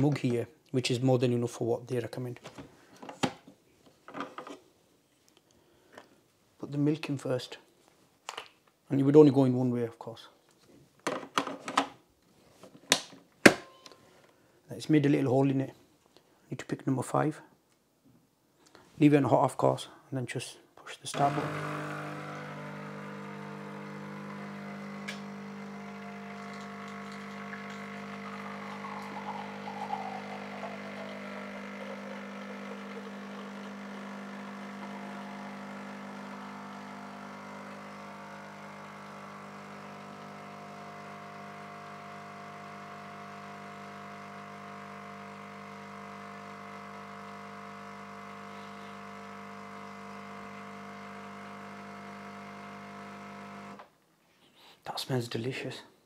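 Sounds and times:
milk streaming into mug: 0:21.2 - 0:53.8
pod machine pump humming: 0:21.2 - 0:53.8.

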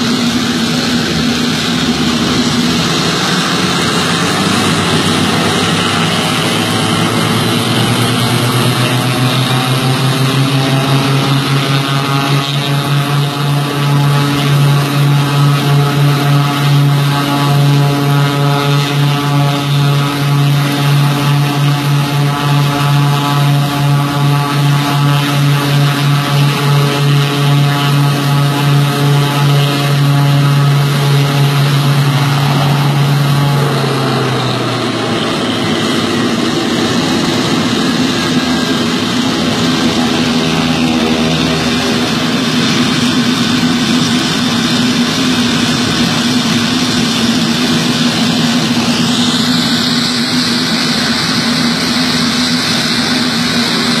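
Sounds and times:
propeller plane engines running: 0:00.0 - 0:54.0.

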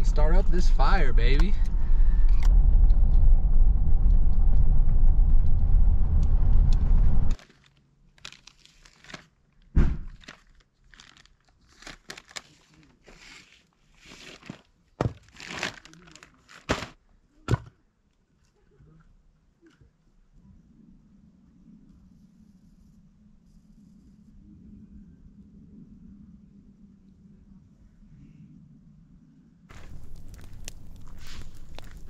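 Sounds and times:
car road and engine rumble: 0:00.0 - 0:07.4, 0:29.7 - 0:32.0
bag rustling and crinkling: 0:07.4 - 0:17.0, 0:29.7 - 0:32.0.

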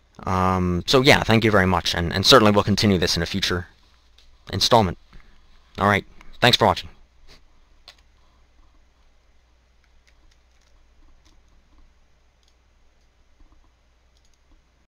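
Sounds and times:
steady low hum: 0:00.0 - 0:14.8
faint clicks: 0:09.8 - 0:14.6.

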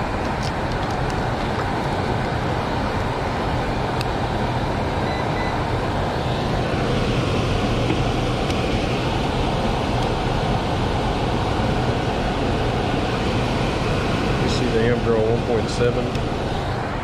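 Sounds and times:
fan air rushing: 0:00.0 - 0:17.0
low motor hum: 0:00.0 - 0:17.0.

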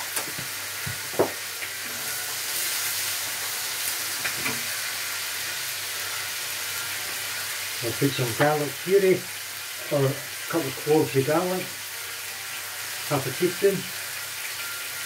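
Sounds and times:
meat sizzling in a frying pan: 0:00.0 - 0:15.0.

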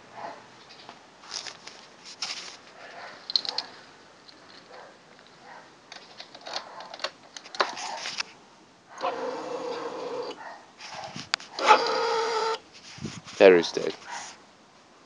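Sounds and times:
camera handling noise: 0:05.9 - 0:08.4.

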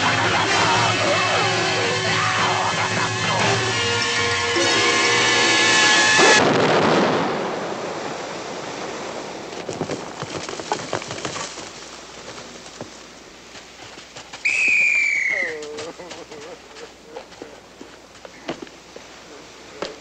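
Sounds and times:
film music: 0:00.0 - 0:06.3
high-pitched falling call: 0:14.4 - 0:15.6.

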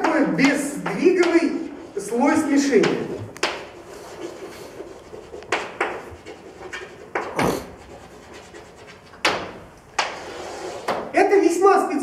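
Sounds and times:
chalk writing on a blackboard: 0:00.0 - 0:11.0.

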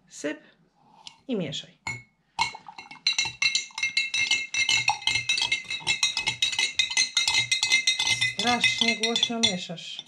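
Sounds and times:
metal spoon clinking in glass jar: 0:01.9 - 0:10.0.

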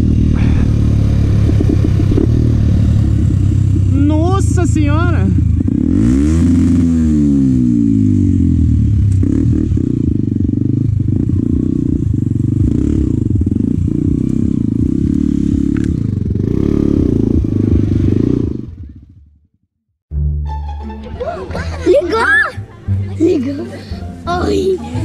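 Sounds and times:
motorcycle engine revving: 0:00.0 - 0:19.7.

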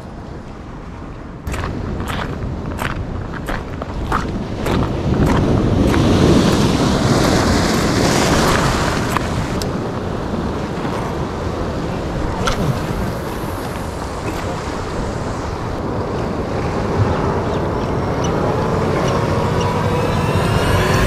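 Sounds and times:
wind on microphone: 0:00.0 - 0:21.0
ocean swell surging against rocks: 0:05.6 - 0:21.0.

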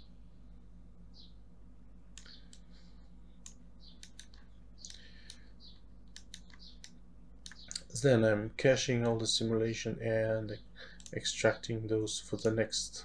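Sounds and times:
faint low hum: 0:00.0 - 0:13.0
mouse and keyboard clicks: 0:06.1 - 0:07.9.

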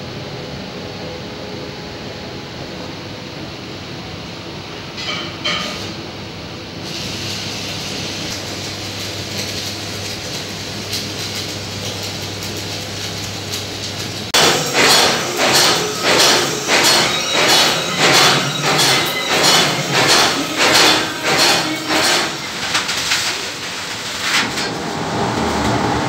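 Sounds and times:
arc welding crackling hiss: 0:06.8 - 0:24.7
hammering on steel: 0:14.4 - 0:22.8.

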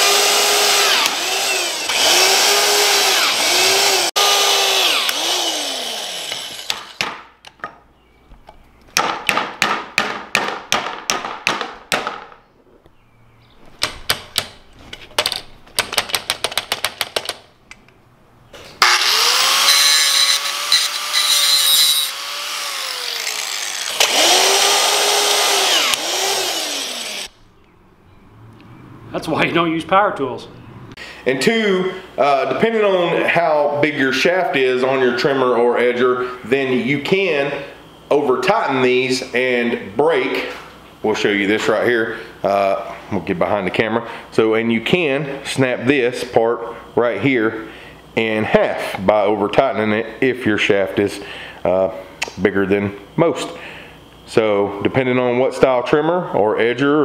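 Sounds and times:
electric drill motor whining: 0:00.0 - 0:07.0, 0:18.8 - 0:27.4.

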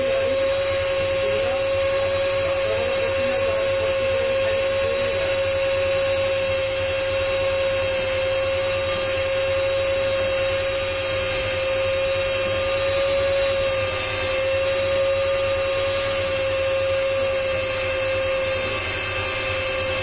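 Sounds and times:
cutting machine motor whining: 0:00.0 - 0:20.0.

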